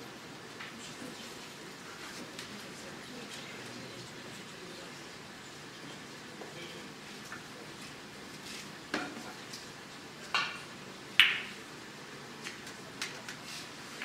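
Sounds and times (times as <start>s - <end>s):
cue striking snooker balls: 11.2s - 11.5s.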